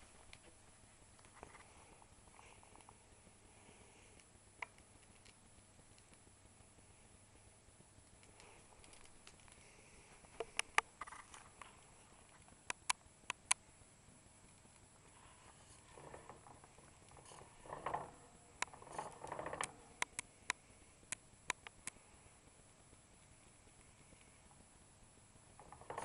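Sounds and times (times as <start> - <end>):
sharp clicks: 12.4 - 13.6, 18.6 - 22.0.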